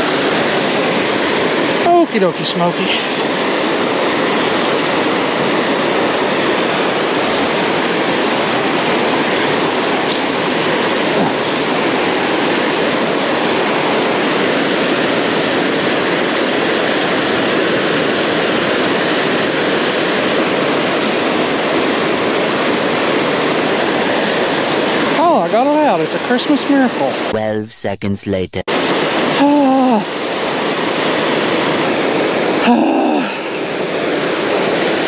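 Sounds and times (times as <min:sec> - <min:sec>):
white water rushing over rocks: 0:00.0 - 0:26.2.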